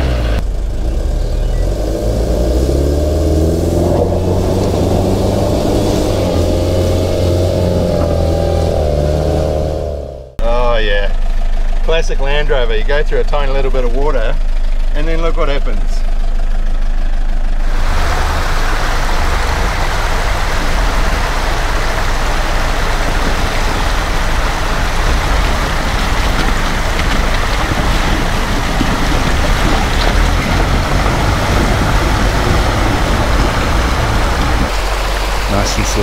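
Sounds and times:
car engine running: 0.0s - 36.0s
dense steady rushing noise: 17.6s - 36.0s.

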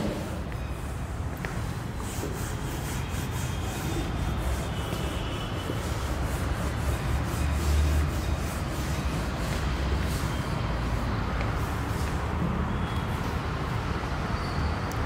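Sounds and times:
duster rubbing on whiteboard: 1.2s - 10.5s.

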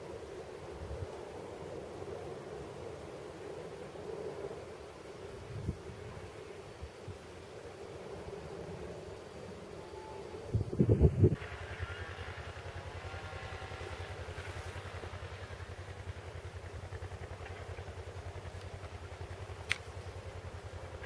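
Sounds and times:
distant diesel locomotive throbbing: 8.6s - 21.0s
sharp click: 19.6s - 20.0s.

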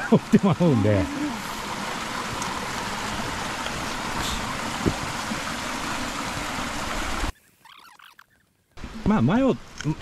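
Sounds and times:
stream rushing over rocks: 0.0s - 7.3s
low knock: 4.8s - 5.1s.

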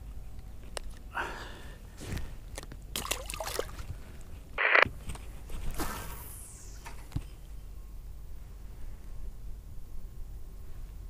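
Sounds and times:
fish splashing: 2.9s - 3.9s.

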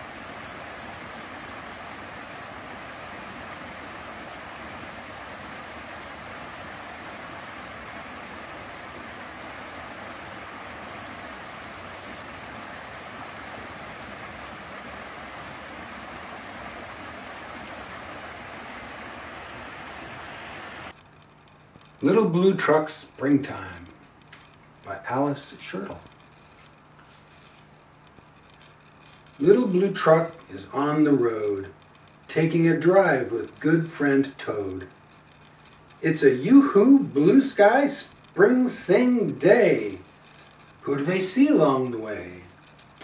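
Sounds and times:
creek water rushing over stones: 0.0s - 21.0s.

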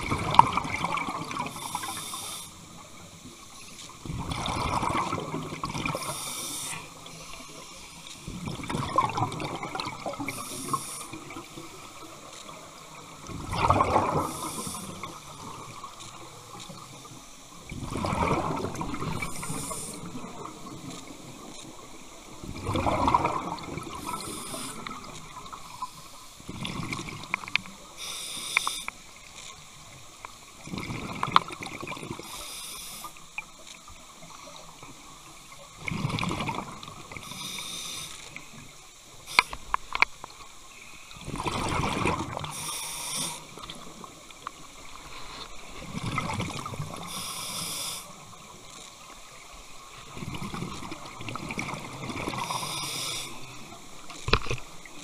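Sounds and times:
exhaled bubbles gurgling: 0.0s - 3.3s, 4.0s - 29.2s, 29.8s - 32.4s, 33.4s - 40.0s, 41.1s - 55.0s
regulator inhale hiss: 1.4s - 2.9s, 5.9s - 8.4s, 10.1s - 11.6s, 14.1s - 15.7s, 19.2s - 20.3s, 23.9s - 26.5s, 27.8s - 29.0s, 32.2s - 33.3s, 37.1s - 39.9s, 42.4s - 44.0s, 45.0s - 45.7s, 46.9s - 48.4s, 52.3s - 53.8s.

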